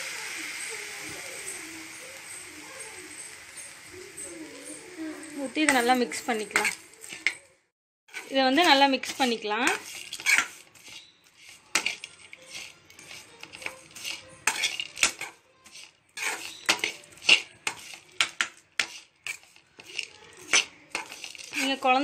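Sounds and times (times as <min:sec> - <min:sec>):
metal spatula scraping a wok: 0:05.3 - 0:07.5, 0:08.1 - 0:22.0.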